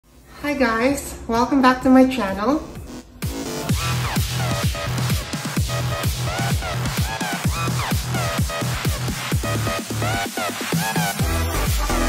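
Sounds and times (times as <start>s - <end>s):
kick drum beat: 3.2s - 12.0s.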